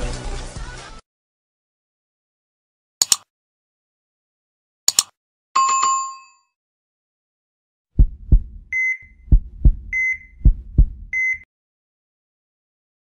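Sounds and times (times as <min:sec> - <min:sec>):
mouse click: 0:03.0 - 0:03.2, 0:04.9 - 0:05.1
deep double thump: 0:08.0 - 0:08.7, 0:09.3 - 0:11.2.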